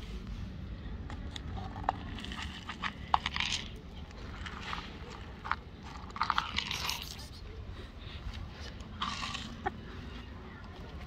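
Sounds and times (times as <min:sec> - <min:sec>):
cat crunching dry kibble: 0:01.0 - 0:07.6, 0:08.6 - 0:09.9
kibble spilling onto paving stones: 0:01.5 - 0:07.4.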